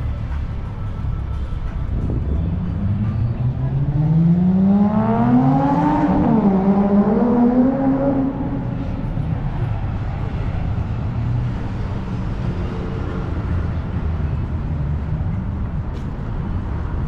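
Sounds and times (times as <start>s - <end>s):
car engine accelerating past: 2.6s - 9.2s.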